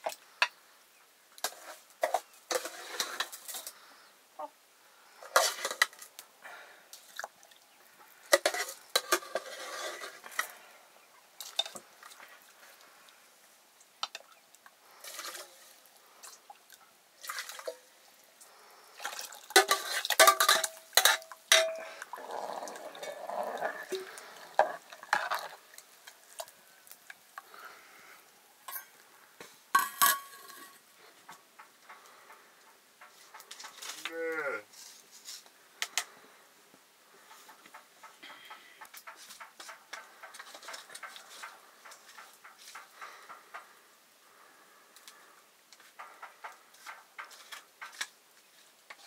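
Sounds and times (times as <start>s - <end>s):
metal utensils clanking on a pot: 1.4s - 3.7s, 5.2s - 6.1s, 8.3s - 10.6s, 11.4s - 11.8s, 19.5s - 22.1s, 28.7s - 29.0s, 29.8s - 30.8s.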